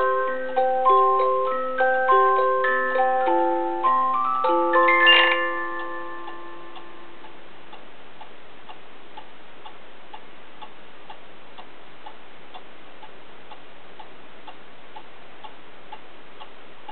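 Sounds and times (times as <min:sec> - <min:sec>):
cuckoo clock tune: 0:00.0 - 0:07.4
clock ticking: 0:00.0 - 0:16.9.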